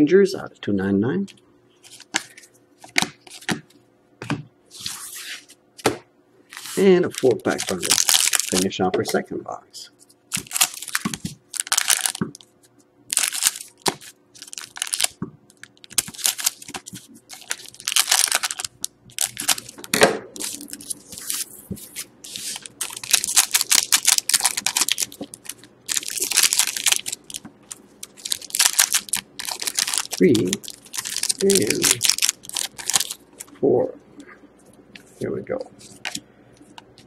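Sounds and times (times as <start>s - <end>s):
foil wrappers crinkling and tearing: 6.5s - 8.8s, 10.3s - 33.6s, 35.8s - 36.2s.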